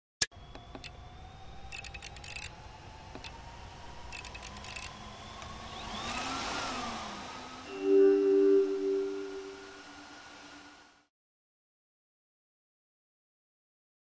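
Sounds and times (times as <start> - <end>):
faint rising tone: 7.7 - 11.0.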